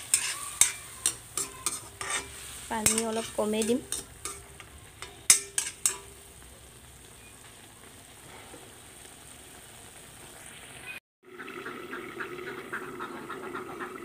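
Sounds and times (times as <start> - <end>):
vegetables sizzling in oil: 0.0 - 11.0
metal spatula knocking on pan: 0.1 - 6.2.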